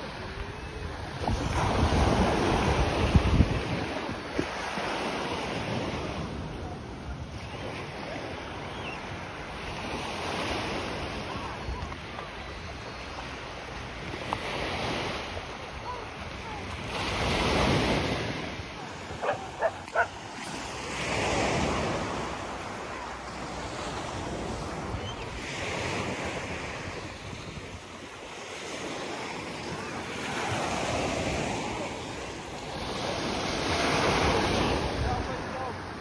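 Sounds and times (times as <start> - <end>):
surf washing up a beach: 0.0 - 36.0
wind buffeting microphone: 0.7 - 4.8
dog barking: 19.2 - 20.2.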